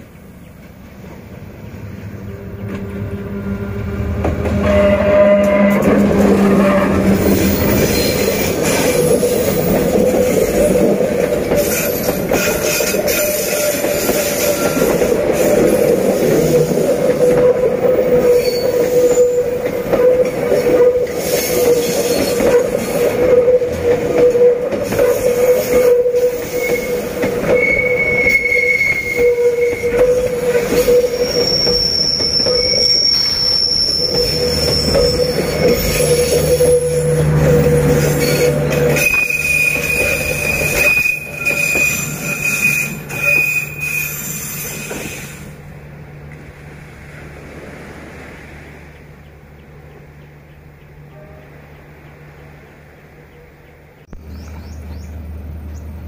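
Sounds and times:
train running gear rumble: 0.0s - 56.0s
high-pitched squeals: 2.1s - 45.5s
train wheels squealing: 3.4s - 10.9s, 11.5s - 45.6s.

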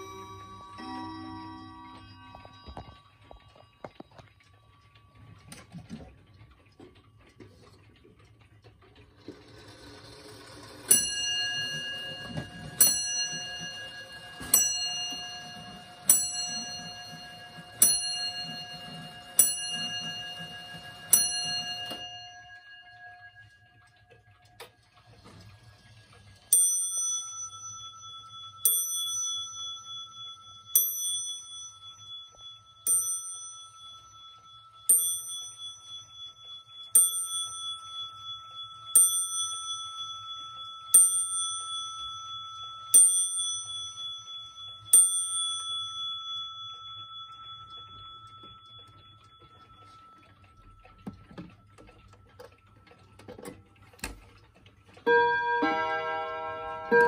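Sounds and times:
wall clock higher-pitched bell strike: 0.0s - 4.2s, 10.8s - 24.4s, 26.5s - 50.5s, 55.0s - 57.0s
wall clock striking on bell: 0.0s - 4.4s, 9.4s - 52.0s, 54.9s - 57.0s.

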